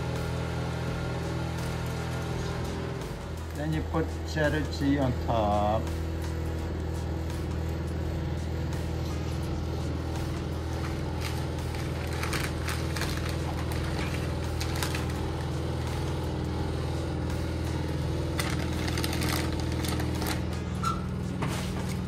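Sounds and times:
steady low hum: 0.0 - 22.0
foil crinkling and clicks: 10.8 - 16.0, 18.2 - 20.7.

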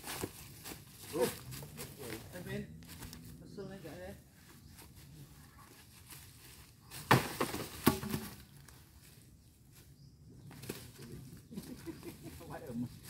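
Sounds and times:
heavy log knocks on ground: 7.0 - 8.4.

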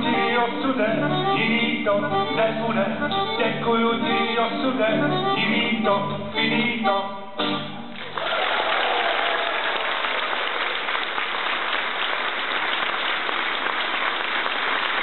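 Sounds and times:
audience applauding: 8.0 - 15.0.

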